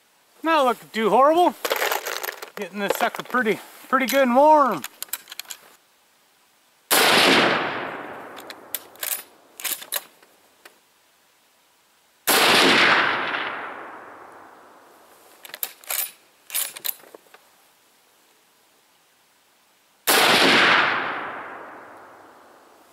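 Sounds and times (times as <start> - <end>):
metallic rifle bolt clacks: 1.6 - 3.4, 4.0 - 5.7, 8.3 - 10.2, 15.4 - 17.2
rifle shots with echo: 6.9 - 8.7, 12.3 - 14.3, 20.1 - 22.3.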